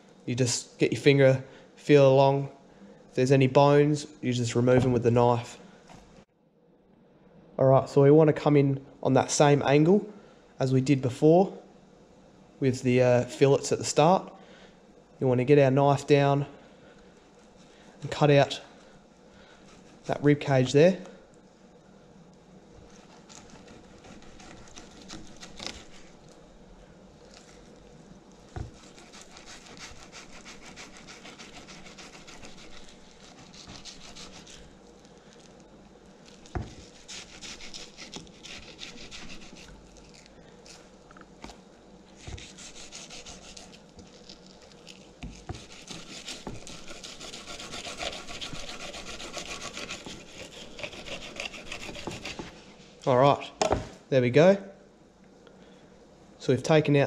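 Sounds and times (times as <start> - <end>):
knife scraping through fish bones: 23.0 - 26.2, 28.6 - 34.7, 36.3 - 40.9, 42.2 - 52.5
knife knocking on cutting board: 53.6 - 54.0.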